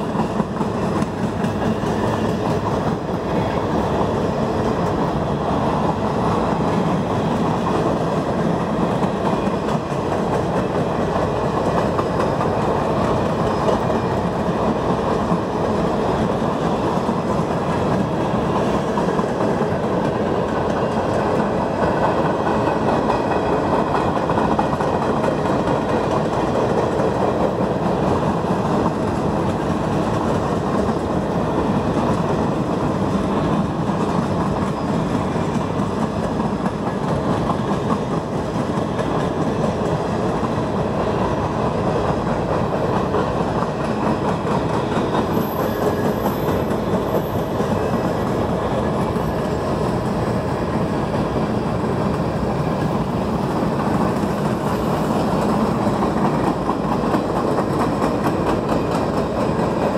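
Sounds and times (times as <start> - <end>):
train wheels on rails: 0.0 - 59.9.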